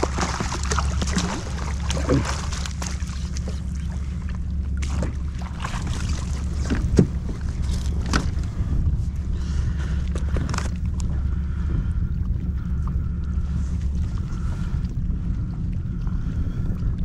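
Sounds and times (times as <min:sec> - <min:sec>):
wind rumbling on microphone: 0:00.0 - 0:17.0
knocks and taps on kayak: 0:06.6 - 0:07.4.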